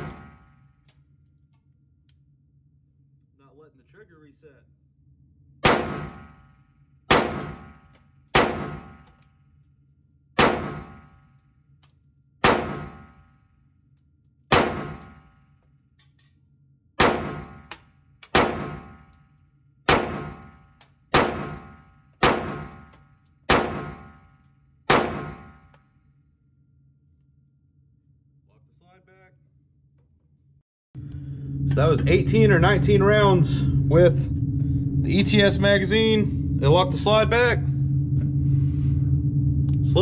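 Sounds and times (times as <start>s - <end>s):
pistol shots echoing indoors: 0.0s - 1.2s, 5.6s - 9.6s, 10.3s - 16.4s, 17.0s - 26.0s.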